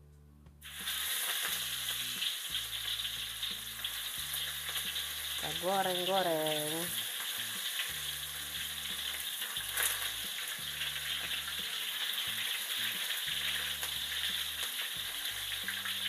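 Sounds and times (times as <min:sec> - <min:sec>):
food deep-frying in oil: 0:00.6 - 0:16.0.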